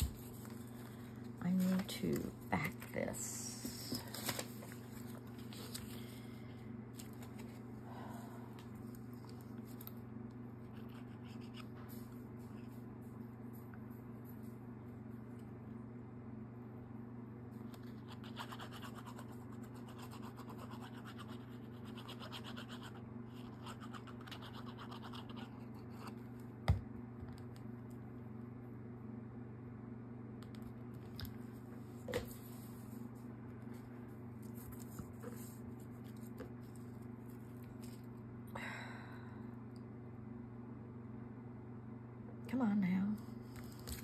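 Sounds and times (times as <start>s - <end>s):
electrical hum: 0.0s - 44.0s
scratching on card: 17.8s - 26.2s.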